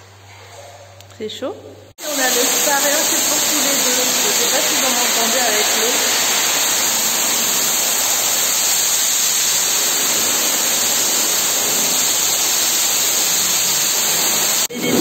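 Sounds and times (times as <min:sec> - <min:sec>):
rushing spa water: 0:02.0 - 0:14.7.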